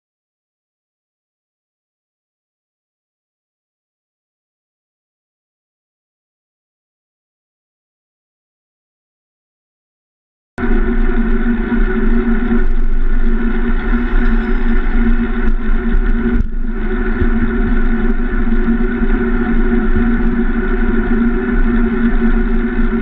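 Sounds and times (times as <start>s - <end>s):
road noise: 10.6s - 21.7s
wind noise: 10.6s - 23.0s.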